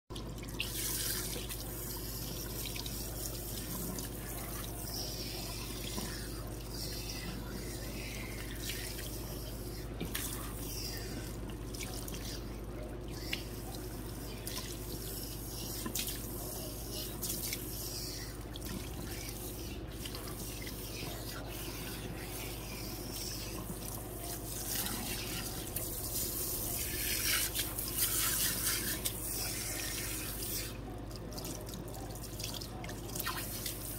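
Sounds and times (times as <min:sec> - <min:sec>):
spray hose water splashing: 0:24.4 - 0:30.5.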